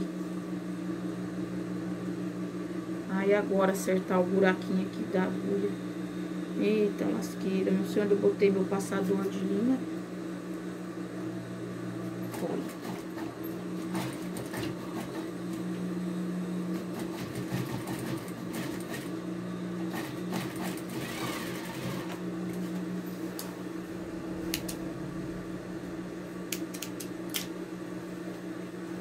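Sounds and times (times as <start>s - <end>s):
sewing machine stitching: 12.3s - 15.3s, 16.7s - 19.1s, 19.9s - 22.2s.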